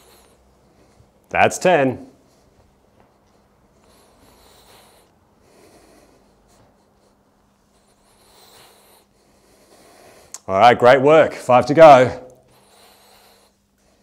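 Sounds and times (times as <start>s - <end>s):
man breathing with exertion: 0.0s - 1.3s, 2.2s - 10.4s, 12.5s - 14.0s.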